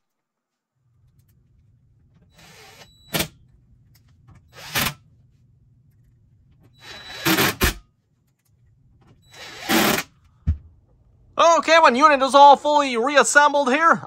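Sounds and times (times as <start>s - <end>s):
impact driver driving screws: 6.8s - 7.8s, 9.3s - 10.1s.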